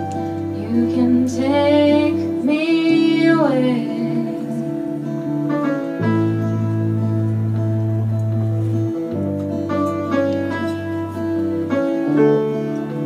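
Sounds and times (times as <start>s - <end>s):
guitars and piano: 0.0s - 13.0s
woman singing: 0.4s - 5.0s.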